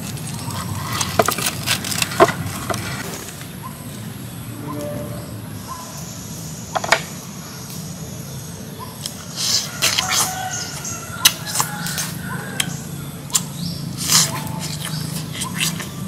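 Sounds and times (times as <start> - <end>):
wet biting and chewing: 13.3 - 16.0.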